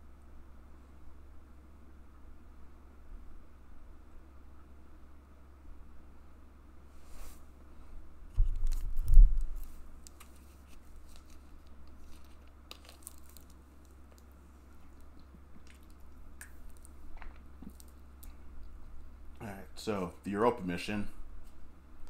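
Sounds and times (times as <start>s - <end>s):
plastic bottle crinkling: 8.4s - 18.7s.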